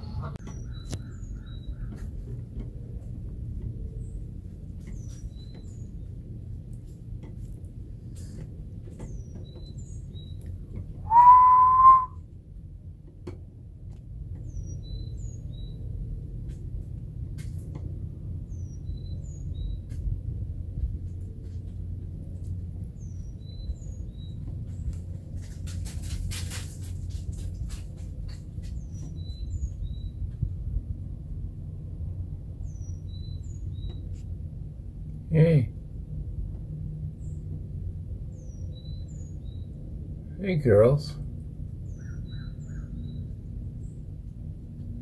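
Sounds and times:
low steady rumble: 0.0s - 45.0s
faint high bird chirps: 9.0s - 12.2s
person whistling: 11.0s - 12.2s.

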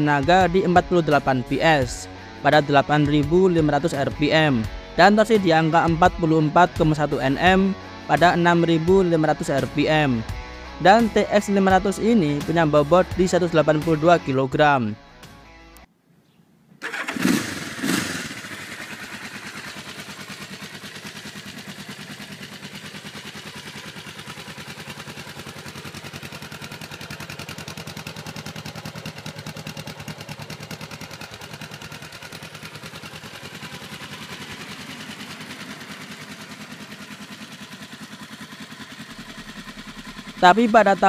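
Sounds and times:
motorcycle engine idling: 0.0s - 14.1s, 16.8s - 41.0s
motorcycle engine revving: 16.8s - 41.0s.

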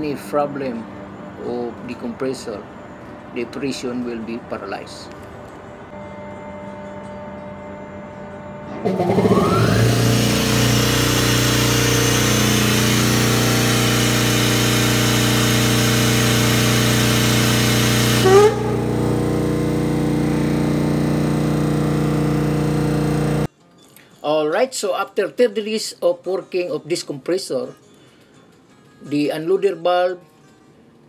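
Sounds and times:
air compressor running: 8.7s - 23.5s
valve burst: 8.8s - 23.5s
loud air hiss: 10.0s - 19.8s.

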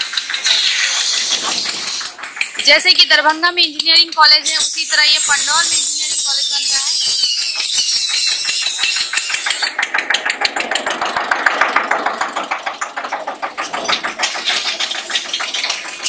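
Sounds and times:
tractor engine driving past: 8.6s - 16.0s.

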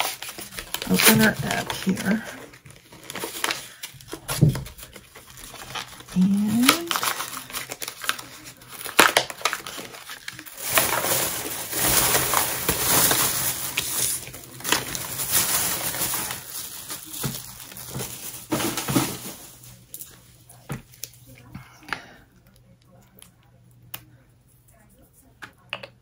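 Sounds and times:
plastic packaging crinkling: 0.0s - 20.2s.

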